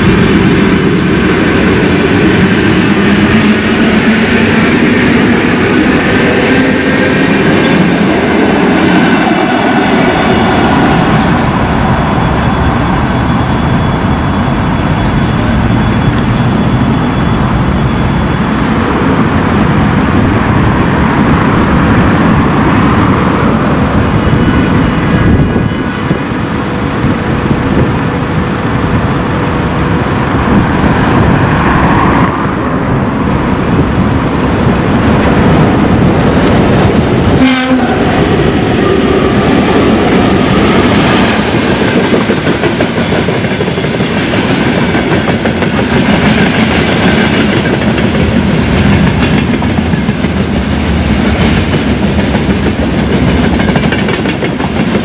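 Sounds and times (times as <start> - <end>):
rumble of train wheels: 0.0 - 55.0
train horn: 37.3 - 39.0
clickety-clack over rail joints: 39.6 - 55.0.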